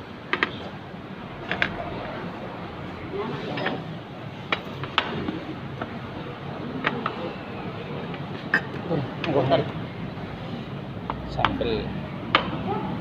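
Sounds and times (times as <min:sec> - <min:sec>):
diners chatting: 0:00.0 - 0:13.0
plates and cutlery clinking: 0:08.4 - 0:08.8.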